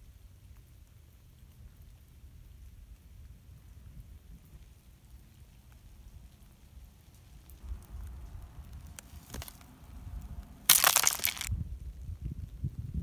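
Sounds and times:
ice cracking and crunching: 0:07.5 - 0:09.7, 0:10.7 - 0:11.5.

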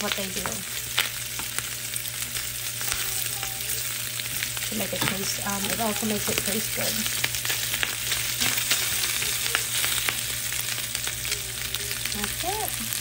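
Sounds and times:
meat sizzling in a frying pan: 0:00.0 - 0:13.0
crackles and pops of oil: 0:07.1 - 0:08.8.

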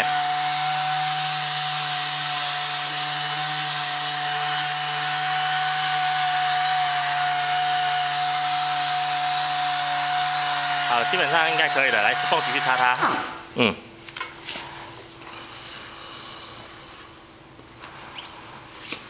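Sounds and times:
pneumatic scrubbing tool whine: 0:00.0 - 0:13.4.

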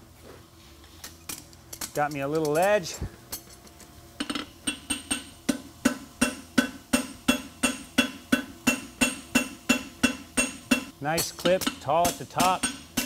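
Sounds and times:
hammer striking horseshoe on anvil: 0:04.2 - 0:13.0.

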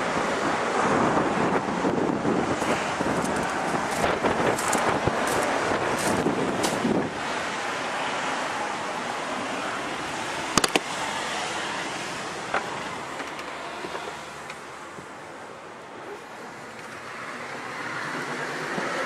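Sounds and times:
wind rushing on microphone: 0:00.0 - 0:08.3.

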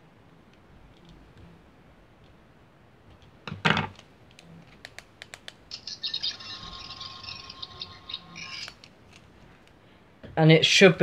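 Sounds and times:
toy high warbling buzz: 0:05.7 - 0:08.8.

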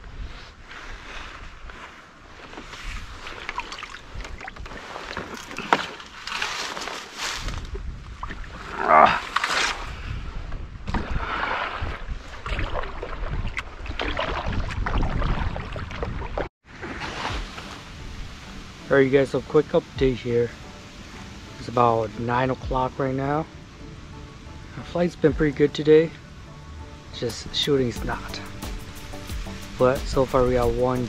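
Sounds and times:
paddle splashing and dripping: 0:03.1 - 0:06.4, 0:10.9 - 0:18.9.

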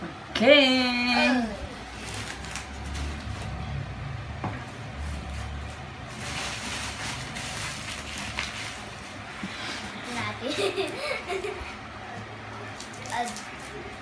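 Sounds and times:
bubble wrap crinkling: 0:01.8 - 0:03.6, 0:04.7 - 0:09.4, 0:12.7 - 0:14.0
low rumble: 0:02.0 - 0:08.0.

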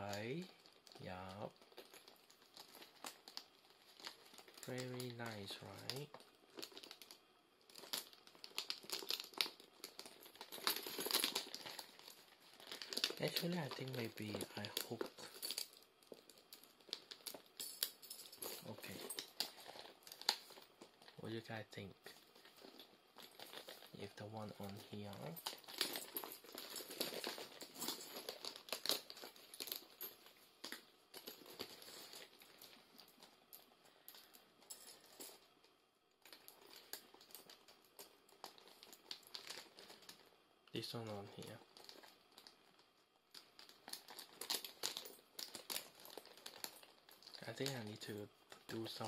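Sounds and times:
hands crinkling and rustling: 0:00.0 - 0:40.4, 0:41.3 - 0:48.9.

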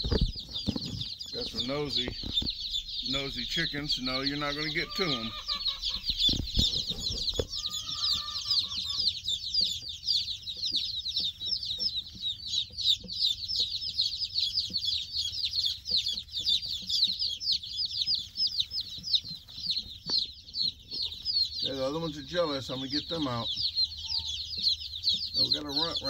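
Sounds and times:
chicks peeping: 0:00.0 - 0:26.0
lower bird call: 0:00.2 - 0:09.4, 0:20.5 - 0:26.0.

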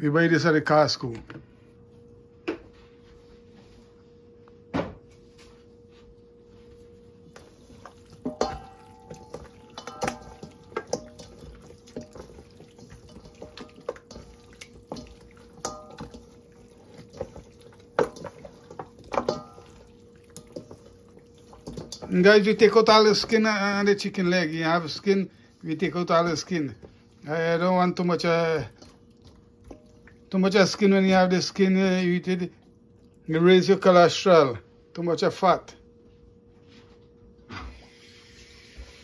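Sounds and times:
wet handling of raw meat: 0:06.4 - 0:33.9.

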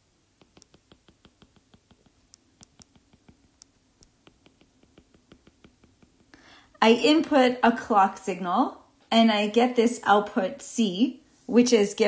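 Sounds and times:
stylus tapping drawing tablet: 0:00.4 - 0:06.4.

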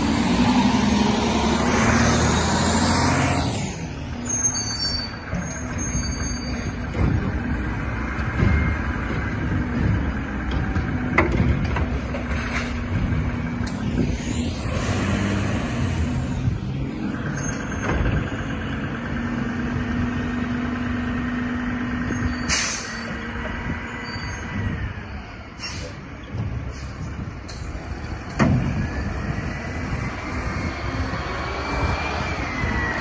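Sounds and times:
garbage truck engine and hydraulics whine: 0:00.0 - 0:33.0
air brakes hiss: 0:22.4 - 0:23.1, 0:25.6 - 0:26.0, 0:26.7 - 0:27.1.

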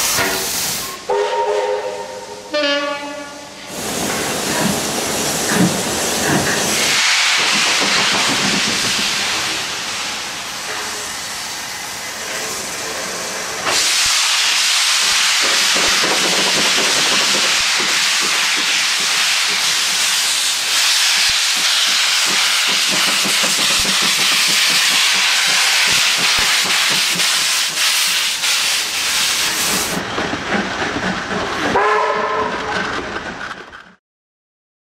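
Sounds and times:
hiss of escaping steam: 0:00.0 - 0:01.0, 0:03.6 - 0:30.0
steam whistle: 0:00.8 - 0:03.6, 0:31.8 - 0:32.5.

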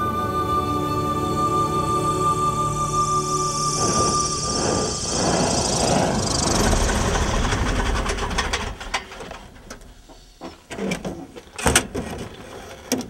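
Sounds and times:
small plane engine and propeller: 0:00.0 - 0:09.2.

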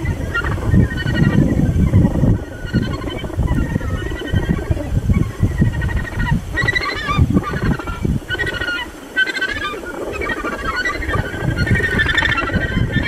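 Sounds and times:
gannets calling: 0:00.0 - 0:13.0
wind rumble on microphone: 0:00.0 - 0:13.0.

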